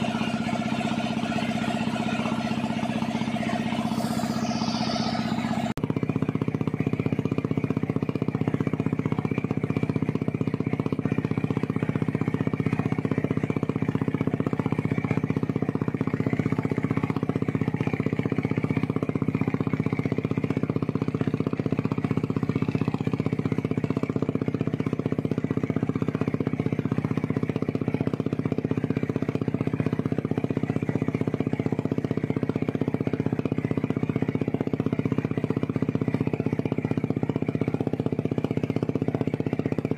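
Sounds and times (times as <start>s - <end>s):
motorboat engine droning: 0.0s - 39.9s.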